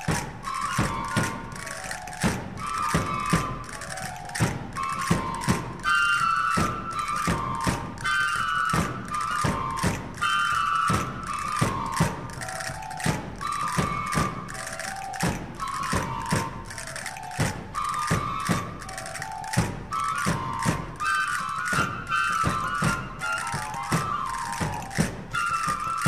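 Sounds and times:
drum beats: 0.0 - 26.0
wooden flute melody: 0.0 - 26.0
castanets clacking: 12.3 - 21.8.

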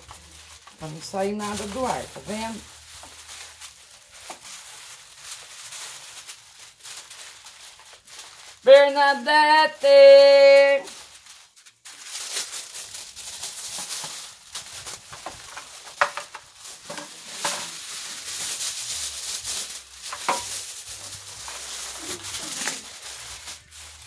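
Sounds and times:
aluminium foil crinkling: 0.0 - 24.0.

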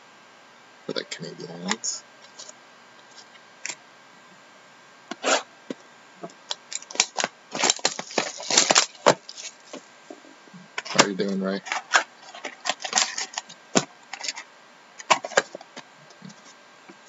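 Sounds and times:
plastic wrap crinkling: 6.2 - 9.9, 10.8 - 16.5
cardboard tearing: 6.7 - 9.8.

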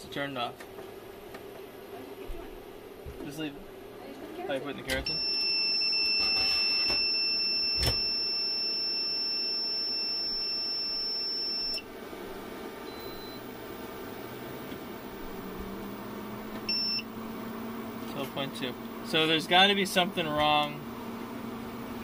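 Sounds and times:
high-pitched alarm buzzer: 5.1 - 11.8, 16.7 - 17.1.

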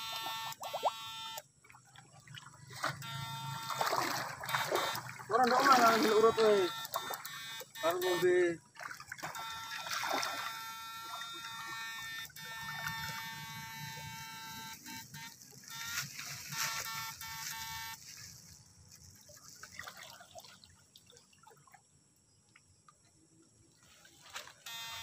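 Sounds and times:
high-pitched electronic whine: 0.0 - 1.5, 2.8 - 8.6, 9.2 - 18.5, 24.6 - 25.0
water sloshing and trickling: 0.0 - 13.7, 14.8 - 24.7.

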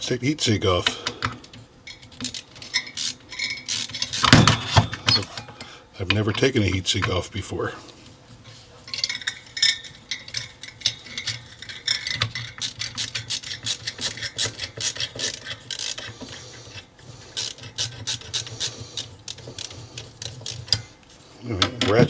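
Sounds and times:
ratcheting screwdriver clicks: 12.0 - 16.2.

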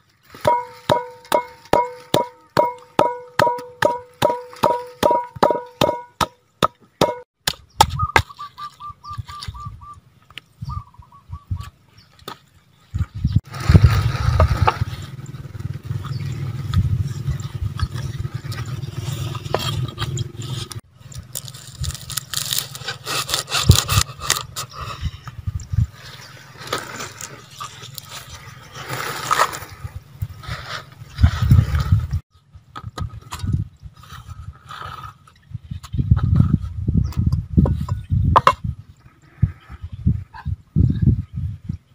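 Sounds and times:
hands rustling herbs and leaves: 0.0 - 2.8, 20.5 - 31.9
pestle pounding in wooden mortar: 0.4 - 8.3.

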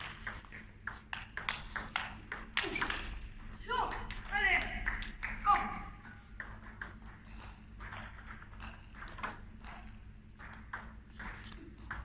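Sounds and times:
table tennis ball clicking: 0.0 - 5.3, 6.0 - 12.0.

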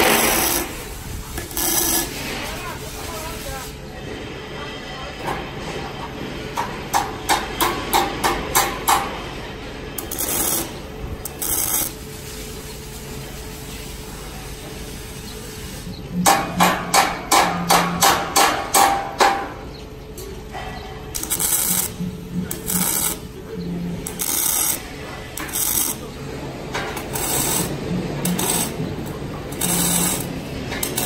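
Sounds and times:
hammer striking metal pole: 16.2 - 19.6.

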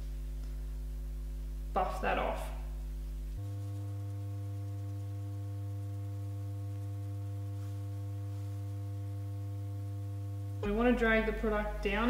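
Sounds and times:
drone of low held tones: 3.4 - 12.0.

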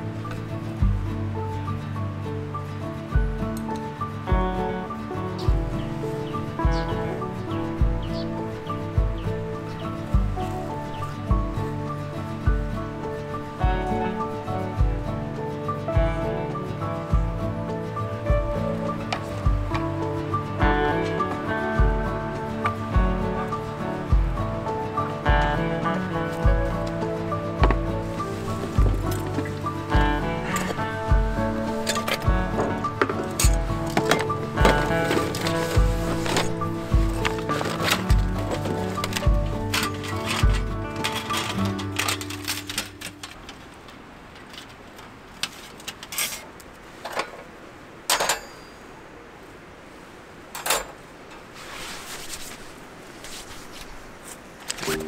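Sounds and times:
sustained melodic notes: 0.0 - 43.1
steady background hiss: 0.0 - 55.0
objects knocking and clattering: 31.5 - 43.5.

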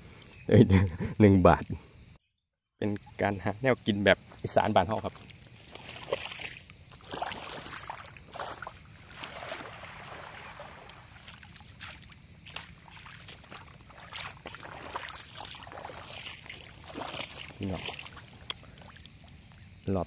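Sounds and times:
water splashing and sloshing: 4.4 - 20.0.

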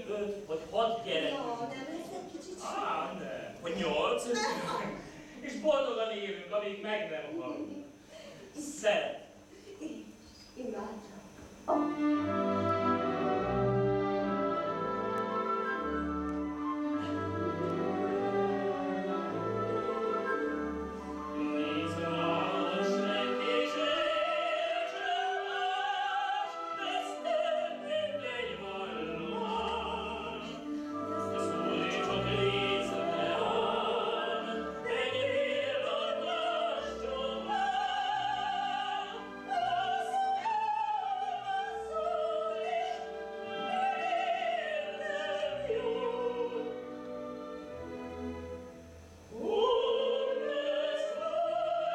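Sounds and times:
string-led orchestra: 11.8 - 51.9
person singing operetta: 21.3 - 47.1, 49.3 - 51.9.

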